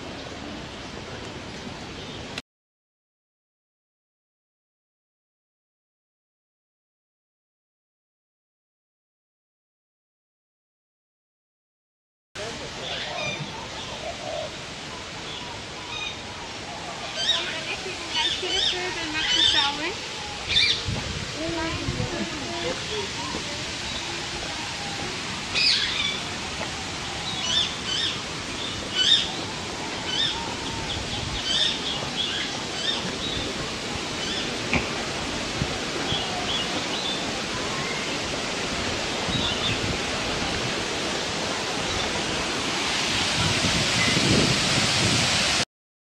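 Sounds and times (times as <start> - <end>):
birds chirping: 12.7 - 40.8
steady rushing noise: 16.2 - 45.6.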